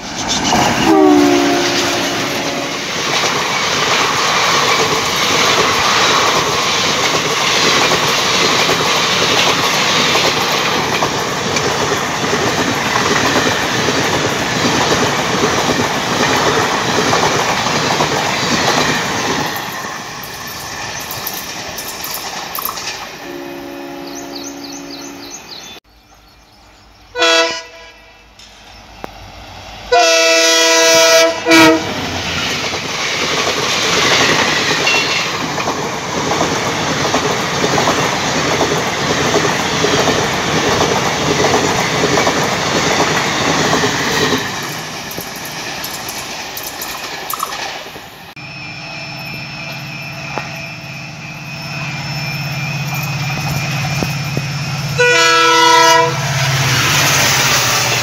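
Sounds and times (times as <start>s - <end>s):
wheels clacking over rails: 0.0s - 23.2s, 31.8s - 48.2s
diesel locomotive drone: 0.0s - 58.0s
train coaches rushing past: 0.0s - 58.0s
train horn blasts: 0.8s - 3.0s, 23.2s - 25.4s, 27.1s - 28.3s, 29.9s - 32.0s, 54.9s - 56.6s.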